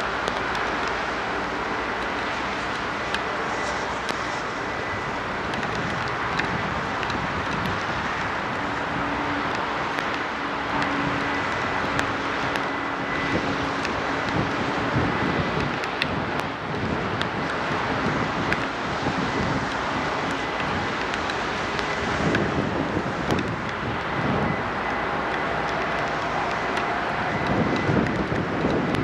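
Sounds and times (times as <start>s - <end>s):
diesel locomotive engine: 0.0s - 29.0s
wind noise on microphone: 0.0s - 29.0s.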